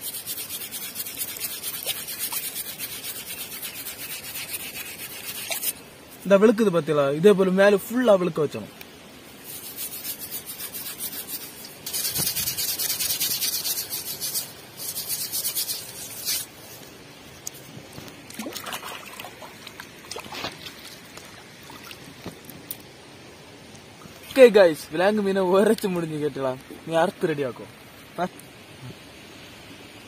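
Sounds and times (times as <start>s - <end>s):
steel wool scrubbing skin: 0.0s - 5.8s, 9.4s - 16.5s
water trickling: 18.2s - 22.8s.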